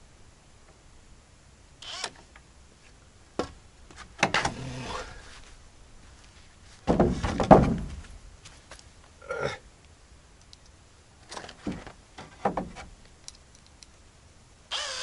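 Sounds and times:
wood knocking: 6.8 - 8.1, 11.6 - 12.9.

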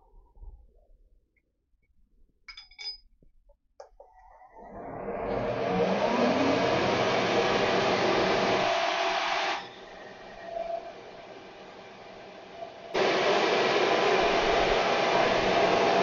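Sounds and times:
milling machine whirring: 4.6 - 16.0.

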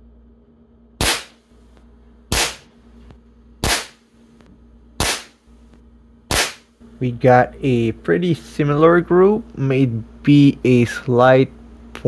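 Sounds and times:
air gun shots cracking: 1.0 - 1.4, 2.3 - 2.7, 3.6 - 4.0, 5.0 - 5.4, 6.3 - 6.7.

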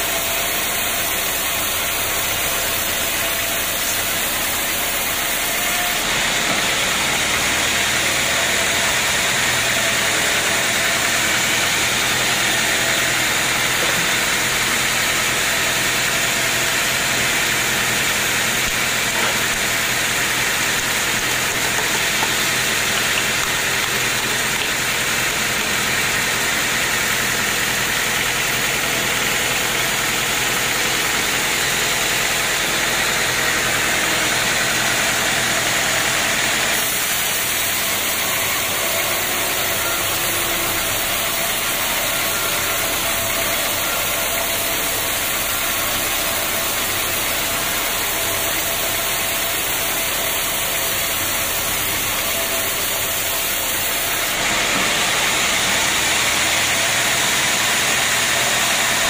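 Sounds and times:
sawmill machine hum: 0.0 - 59.0
band saw blade hissing: 1.9 - 6.6.

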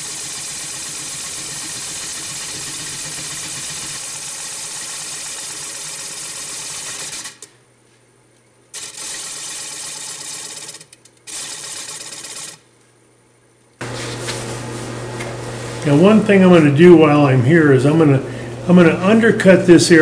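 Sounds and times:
gouge cutting spinning wood: 0.0 - 7.4
lathe low hum: 13.8 - 20.0.

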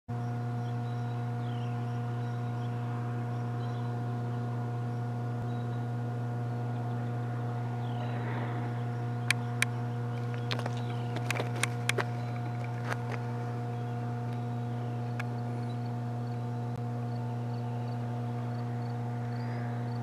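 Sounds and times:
low machine hum: 0.1 - 20.0
sharp clicks: 9.2 - 13.2.

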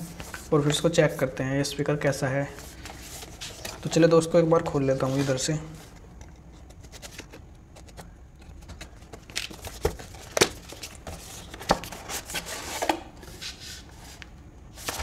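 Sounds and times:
paper and card rustling: 2.5 - 14.2, 14.8 - 15.0.

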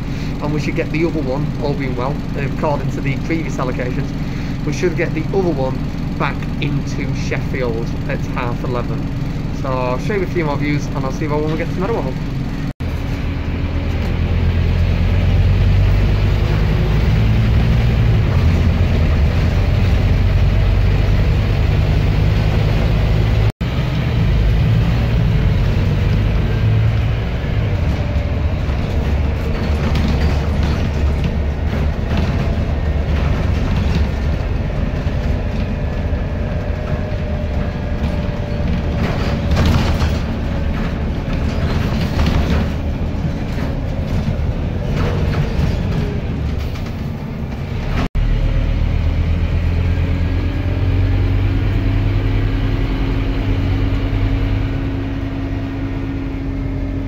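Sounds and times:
bus diesel engine drone: 0.0 - 57.0
road and body rumble: 0.0 - 57.0.

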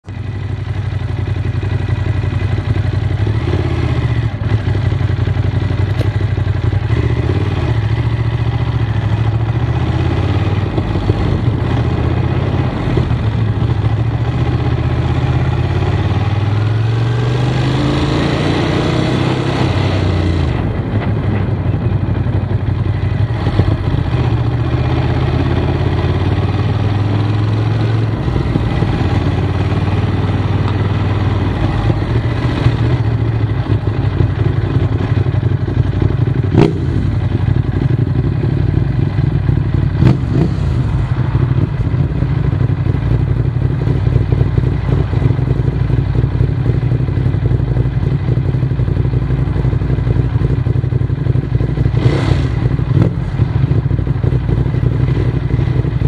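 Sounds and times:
motorcycle engines idling: 0.1 - 16.9, 20.0 - 56.0
motorcycle accelerating away: 6.8 - 20.9, 23.2 - 45.7, 49.7 - 56.0.

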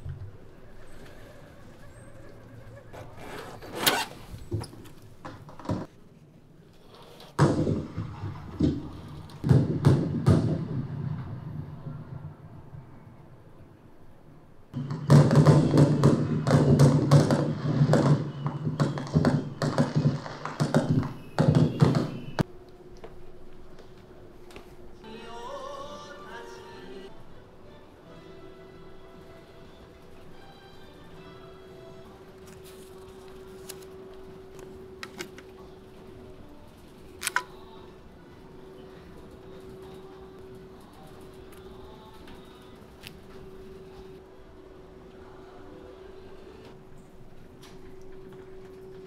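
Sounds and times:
fireworks bangs and crackles: 9.4 - 12.1, 14.8 - 22.4.

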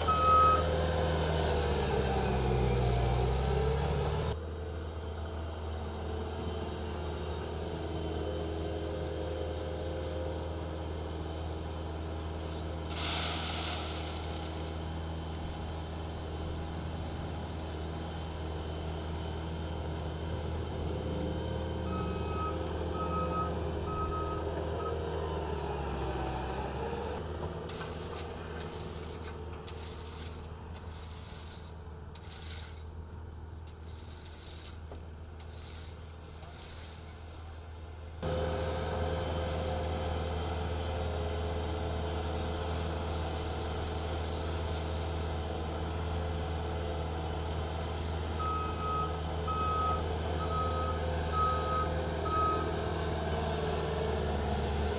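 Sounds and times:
diesel engine running: 0.0 - 34.0, 34.8 - 54.9
hand tool scraping gravel: 12.2 - 20.2, 27.7 - 38.1
loud hiss: 12.4 - 20.2, 42.2 - 45.6.

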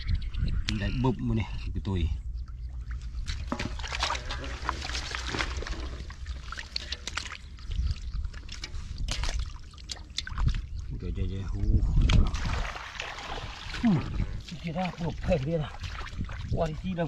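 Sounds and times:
hands splashing in muddy water: 2.8 - 10.8, 12.0 - 16.8
fish dropped into water: 3.2 - 7.4.

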